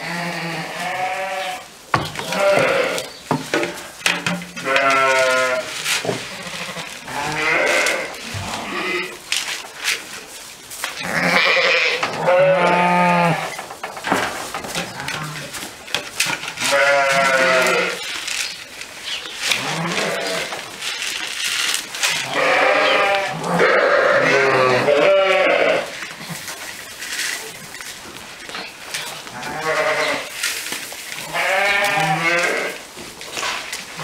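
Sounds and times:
sheep bleating: 0:11.0 - 0:13.5, 0:22.2 - 0:25.9, 0:29.3 - 0:30.3, 0:31.2 - 0:32.8.

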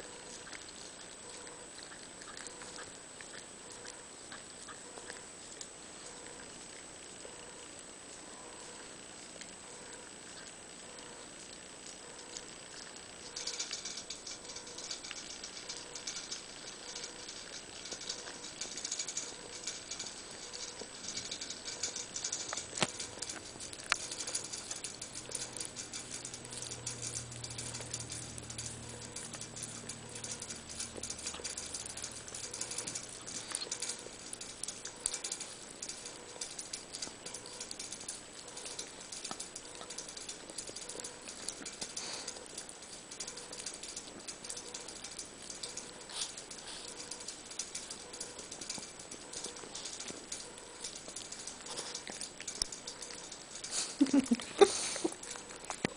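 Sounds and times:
dog licking: 0:00.0 - 0:06.9, 0:27.3 - 0:55.9.

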